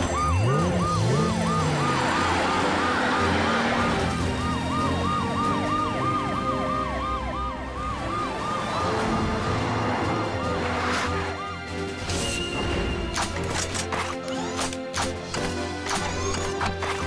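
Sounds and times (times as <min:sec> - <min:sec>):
fast yelping siren: 0:00.0 - 0:11.8
second siren: 0:00.0 - 0:12.0.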